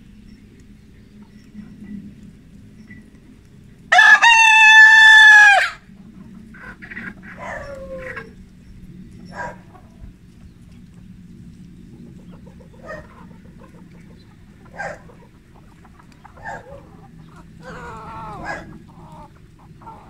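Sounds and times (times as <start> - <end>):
rooster crowing: 3.9 - 5.8, 17.6 - 20.0
chicken calls: 3.9 - 8.5, 9.2 - 11.1, 11.8 - 20.0.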